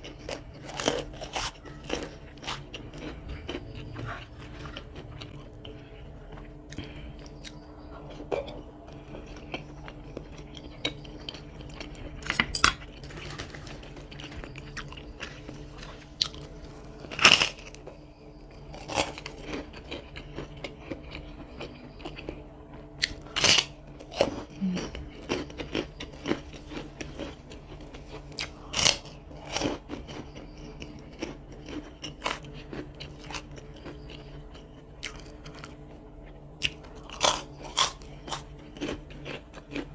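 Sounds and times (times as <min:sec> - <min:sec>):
chewing and wet mouth noises: 0:00.0 - 0:39.9.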